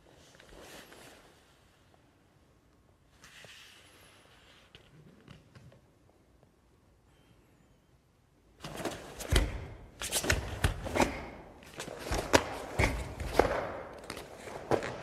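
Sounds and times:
bare feet stamping on a mat: 8.6s - 15.0s.

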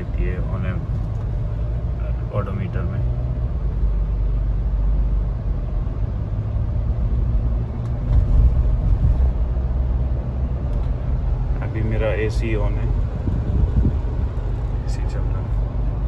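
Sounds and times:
engine and road noise in cabin: 0.0s - 16.0s.

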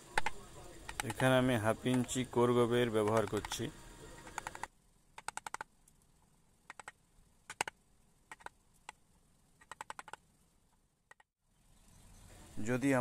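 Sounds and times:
carving gouge clicking through wood: 0.1s - 1.3s, 1.9s - 2.2s, 3.0s - 3.6s, 4.2s - 5.7s, 6.7s - 8.6s, 9.6s - 10.2s, 11.1s - 11.3s.

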